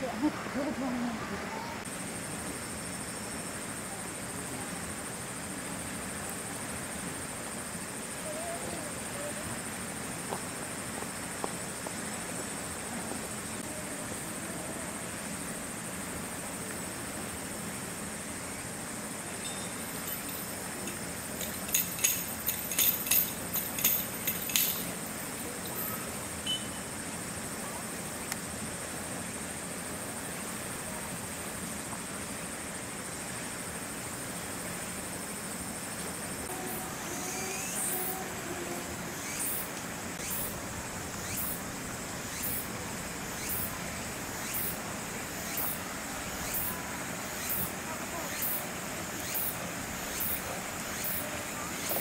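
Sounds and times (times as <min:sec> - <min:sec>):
outdoor background noise: 0:00.0 - 0:52.0
metal chain rattling: 0:19.4 - 0:24.9.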